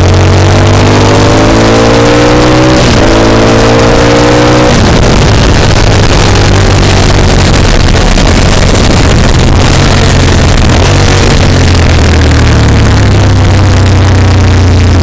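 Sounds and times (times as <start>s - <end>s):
motorcycle engine at speed: 0.0s - 15.0s
wind rush: 2.8s - 13.6s.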